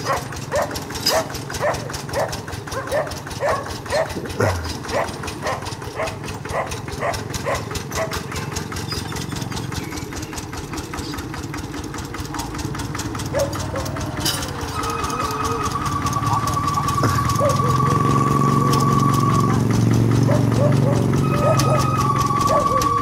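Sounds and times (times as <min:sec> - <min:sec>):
dog barking: 0:00.0 - 0:08.4, 0:13.3 - 0:14.0, 0:17.0 - 0:17.8, 0:20.2 - 0:22.9
diesel tractor engine running: 0:00.0 - 0:23.0.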